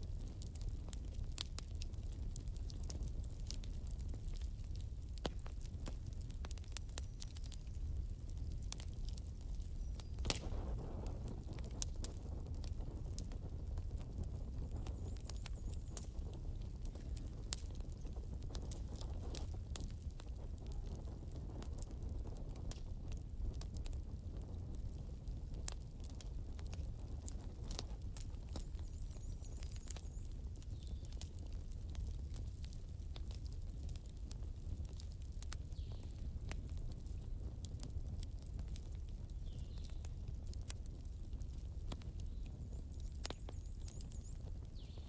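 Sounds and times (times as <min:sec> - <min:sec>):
fire crackling and popping: 0:00.0 - 0:45.0
rush of flame: 0:08.7 - 0:28.8.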